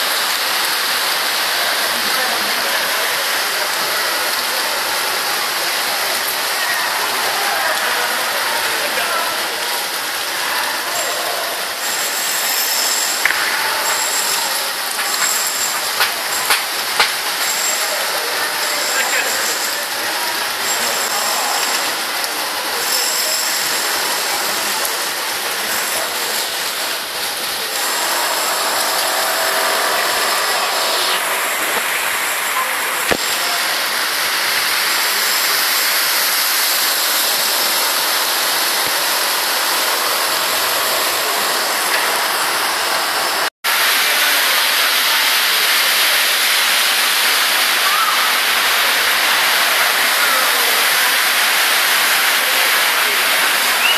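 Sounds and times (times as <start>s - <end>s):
heavy rain pouring: 0.0s - 53.9s
water running: 5.9s - 43.5s.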